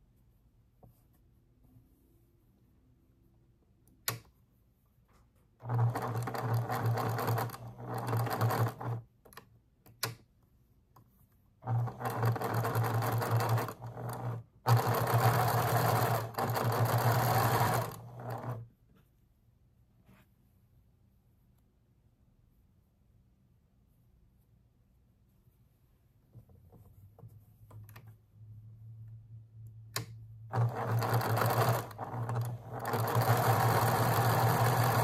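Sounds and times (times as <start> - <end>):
sewing machine stitching: 5.6 - 9.1, 11.6 - 18.7, 30.0 - 35.0.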